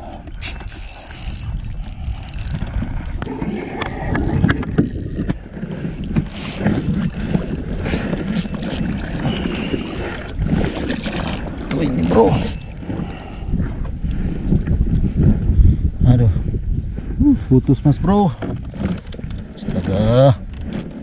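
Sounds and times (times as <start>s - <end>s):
fishing reel clicks: 0.0s - 5.3s, 6.4s - 7.7s, 8.3s - 9.0s, 9.6s - 10.3s, 10.9s - 12.7s
water lapping against boat hull: 0.0s - 15.6s, 18.1s - 21.0s
wind on microphone: 0.0s - 21.0s.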